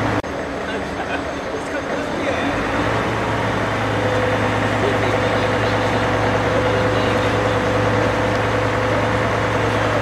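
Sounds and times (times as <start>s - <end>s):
vehicle engine idling: 0.0s - 10.0s.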